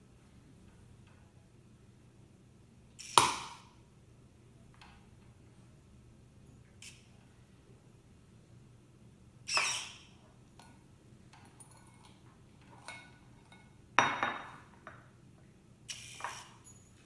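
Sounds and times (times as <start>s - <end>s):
glass clunk on marble: 14.0s - 15.0s.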